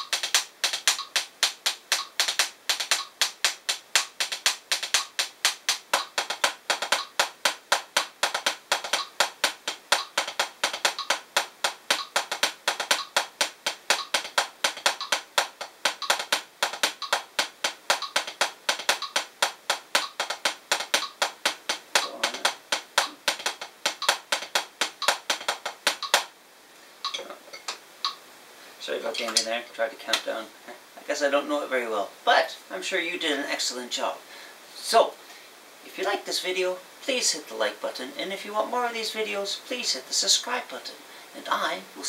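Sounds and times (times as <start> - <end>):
drumsticks tapping practice pad: 0.0 - 26.4, 27.0 - 28.2, 29.1 - 30.3.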